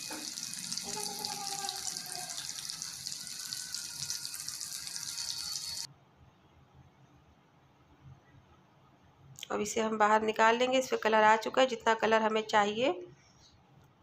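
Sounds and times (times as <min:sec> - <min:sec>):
chicken deep-frying in oil: 0:00.0 - 0:05.9.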